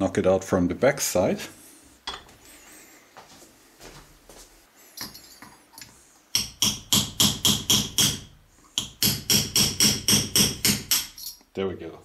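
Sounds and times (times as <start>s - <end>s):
hammer tapping metal punch: 6.3s - 11.3s.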